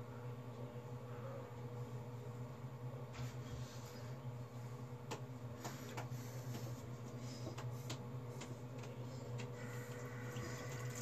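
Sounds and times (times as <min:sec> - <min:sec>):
steady low hum: 0:00.0 - 0:11.0
light clicks and taps: 0:05.0 - 0:09.6.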